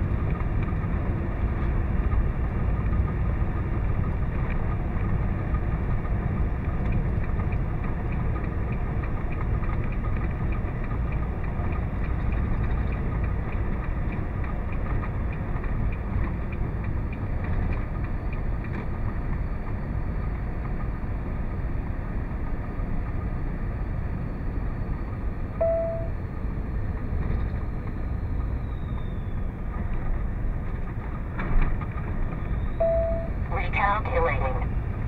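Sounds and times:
truck engine and road noise: 0.0s - 35.0s
short beep: 25.6s - 26.2s, 32.8s - 33.4s.

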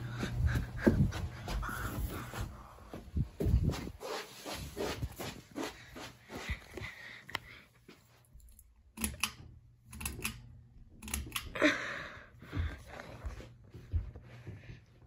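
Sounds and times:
fan motor hum: 0.0s - 15.0s
pull-chain switch clicking: 9.0s - 10.4s, 11.0s - 11.6s.

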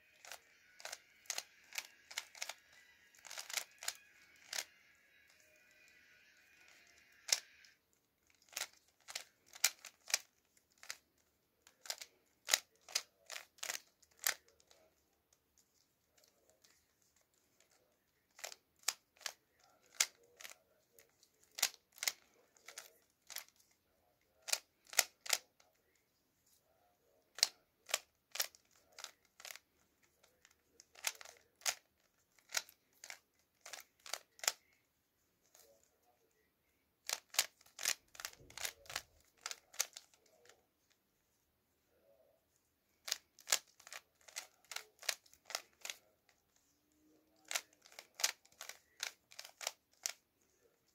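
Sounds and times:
plastic puzzle cube clicking: 0.0s - 14.9s, 16.2s - 23.7s, 24.4s - 25.7s, 27.3s - 34.8s, 37.0s - 40.6s, 43.0s - 46.6s, 47.3s - 50.2s.

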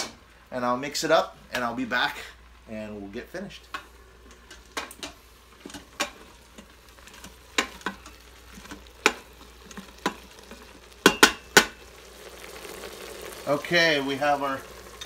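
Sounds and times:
vegetables sizzling: 0.0s - 15.0s
wooden spoon scraping and knocking pot: 3.7s - 11.7s.

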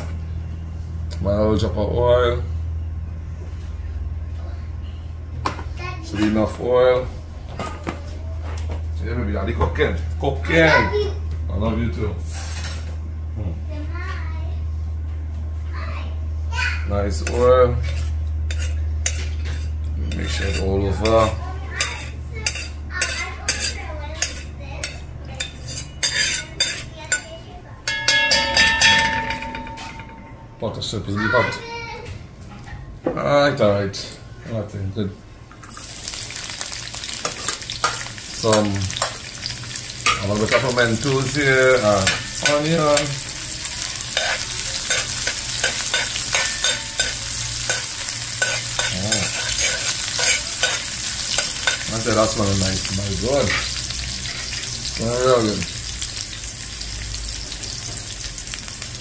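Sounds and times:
metal spoon scraping steel pan: 17.3s - 27.3s, 44.1s - 52.0s
pan ringing: 27.8s - 30.9s, 44.8s - 50.9s
vegetables sizzling in oil: 35.6s - 59.0s.

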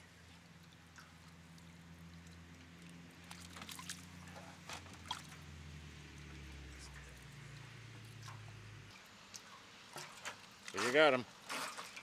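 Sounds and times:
water splashing and sloshing: 0.0s - 12.0s
fish thrashing at the surface: 2.8s - 5.4s.

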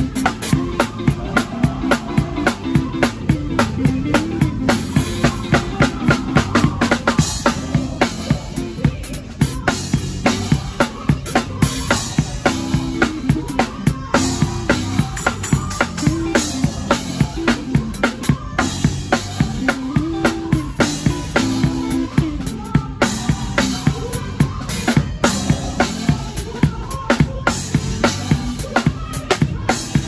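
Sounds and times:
gospel band music: 0.0s - 30.0s.

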